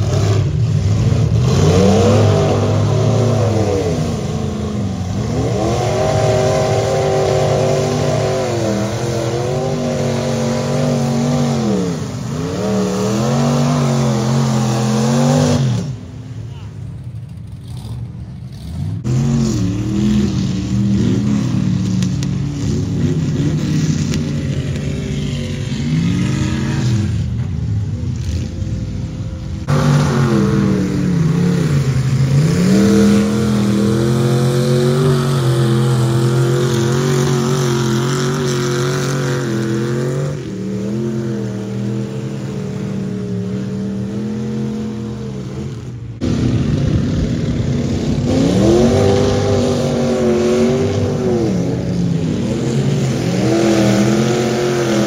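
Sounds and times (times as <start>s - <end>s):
truck engine revving in mud: 0.0s - 16.5s, 17.5s - 55.0s.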